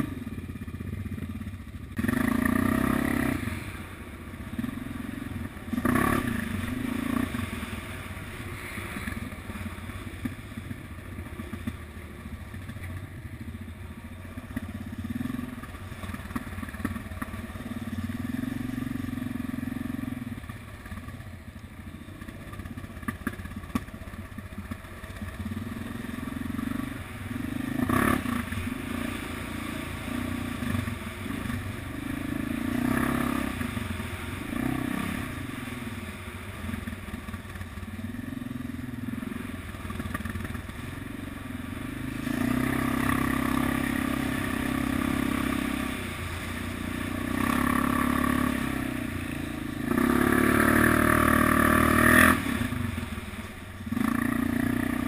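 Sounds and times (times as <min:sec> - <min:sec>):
atv engine revving: 0:00.0 - 0:55.0.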